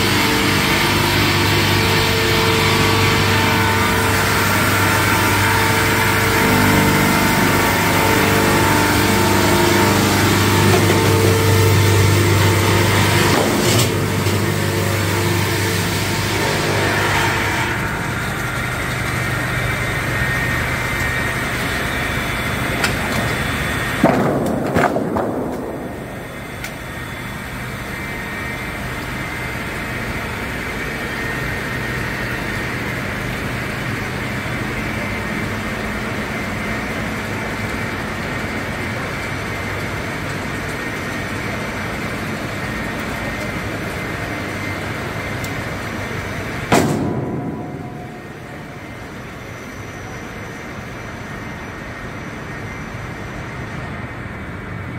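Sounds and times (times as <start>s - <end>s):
circular saw machine sawing log: 0.0s - 51.6s
loud clatter: 22.8s - 27.0s, 46.6s - 49.6s.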